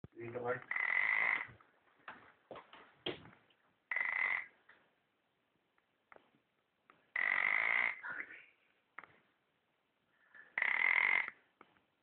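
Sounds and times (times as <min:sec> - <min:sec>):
faint breath sounds: 0:10.1 - 0:10.6.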